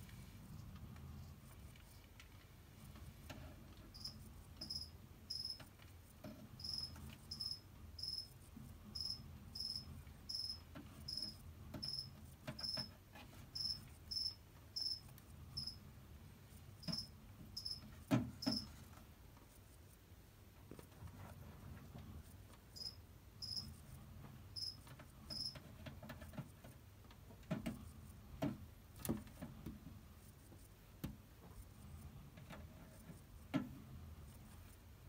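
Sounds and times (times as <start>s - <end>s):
cricket chirping: 3.9s - 5.6s, 6.6s - 8.3s, 9.0s - 12.8s, 13.6s - 15.0s, 15.6s - 15.8s, 16.8s - 17.8s, 22.8s - 23.6s, 24.6s - 25.6s.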